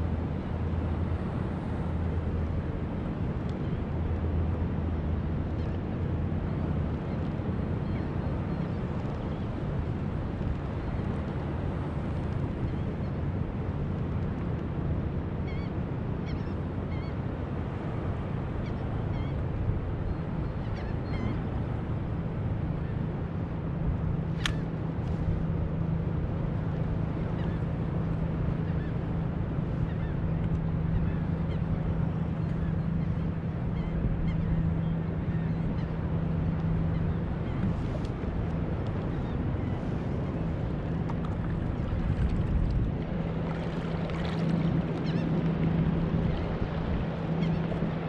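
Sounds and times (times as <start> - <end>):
wind: 0.0 - 48.0
water noise: 21.6 - 48.0.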